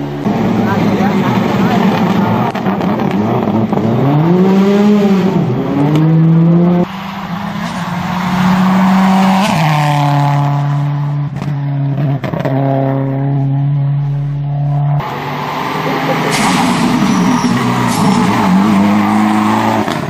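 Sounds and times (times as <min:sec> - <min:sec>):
rally car engine at steady revs: 0:00.0 - 0:06.9
rally car engine revving: 0:00.0 - 0:20.0.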